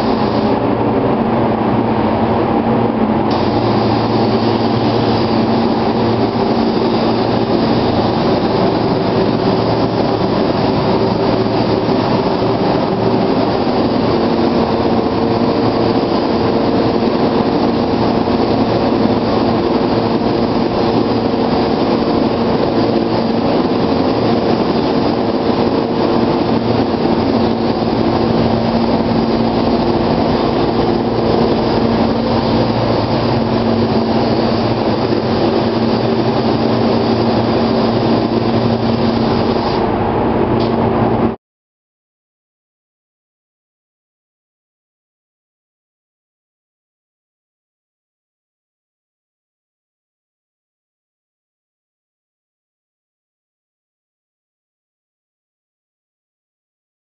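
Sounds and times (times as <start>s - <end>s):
paint spray gun hissing: 0.0s - 0.7s, 3.3s - 40.0s
spray booth air noise: 0.0s - 41.4s.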